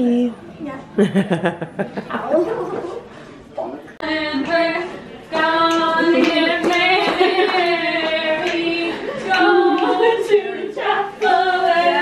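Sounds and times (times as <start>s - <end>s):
women singing: 4.0s - 12.0s.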